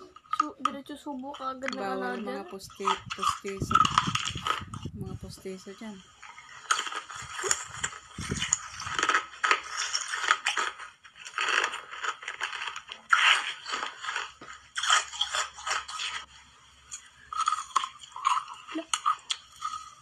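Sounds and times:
ice being crunched: 0:02.8 - 0:04.7, 0:06.2 - 0:16.3.

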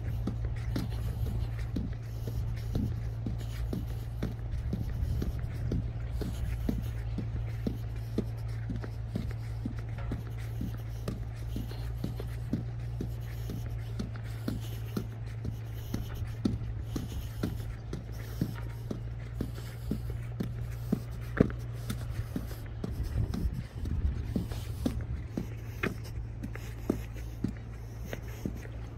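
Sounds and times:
footsteps on concrete: 0:00.0 - 0:28.9
steady low hum: 0:00.0 - 0:28.9.

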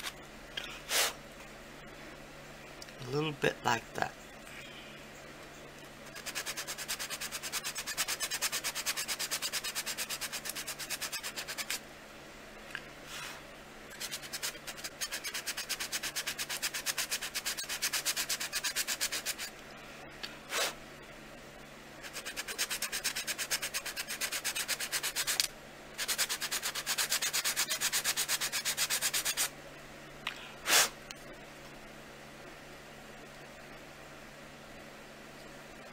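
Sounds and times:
sanding block rubbing clay: 0:06.2 - 0:11.8, 0:14.0 - 0:19.5, 0:22.0 - 0:29.5.

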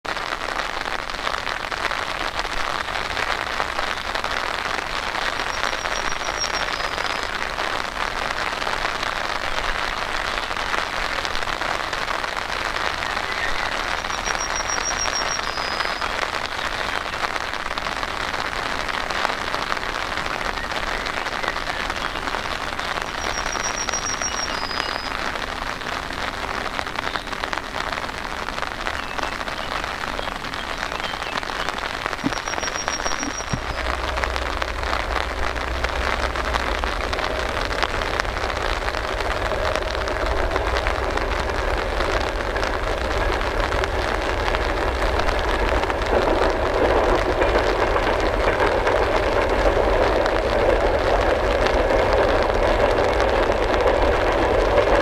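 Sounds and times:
steady rain falling: 0:00.0 - 0:55.0
high rapid bird trill: 0:05.4 - 0:07.2, 0:13.2 - 0:16.2, 0:22.9 - 0:25.2, 0:29.0 - 0:35.0.

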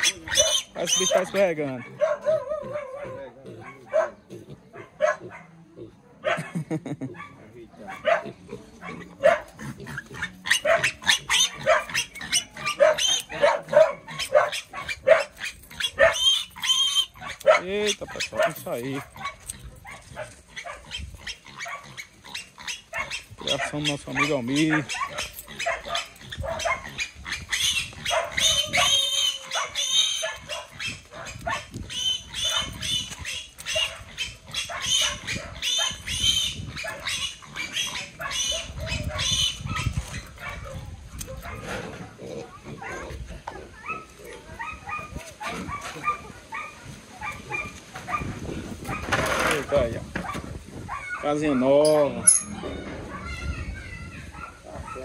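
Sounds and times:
piglets squealing: 0:00.0 - 0:03.7, 0:08.2 - 0:18.6, 0:20.5 - 0:40.9.

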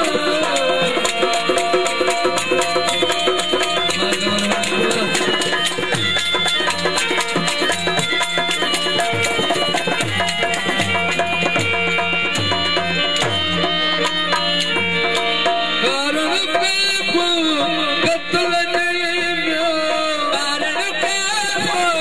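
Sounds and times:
man singing: 0:00.0 - 0:01.6, 0:03.8 - 0:05.7, 0:15.7 - 0:22.0
sustained instrumental notes: 0:00.0 - 0:18.5
dholak drumming: 0:00.0 - 0:22.0.

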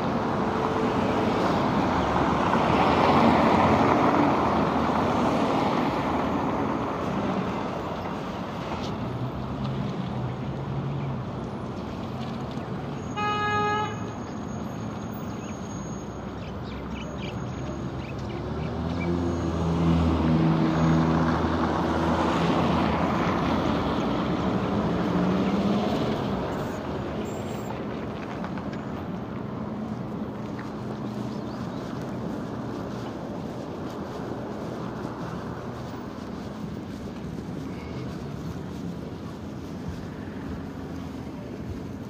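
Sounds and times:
road traffic passing: 0:00.0 - 0:42.0
car horn toot: 0:13.1 - 0:14.1.

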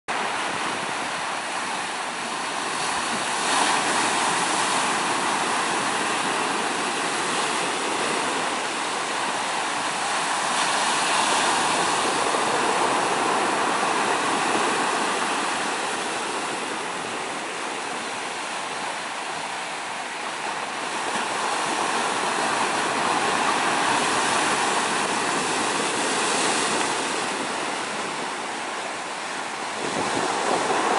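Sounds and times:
surf washing over pebbles: 0:00.1 - 0:30.9.

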